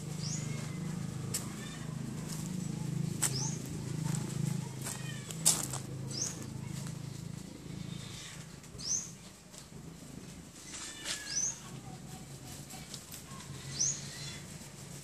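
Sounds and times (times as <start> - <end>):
bird chirping: 0.1 - 0.9, 2.6 - 3.8, 6.0 - 7.2, 8.4 - 9.3, 11.2 - 11.7.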